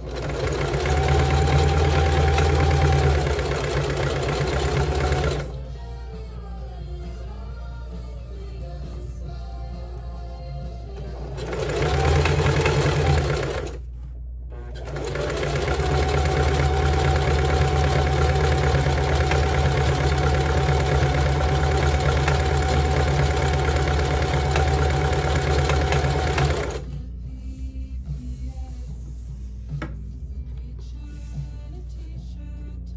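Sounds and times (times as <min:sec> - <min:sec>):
sewing machine running: 0:00.0 - 0:05.6, 0:11.2 - 0:13.8, 0:14.6 - 0:26.9.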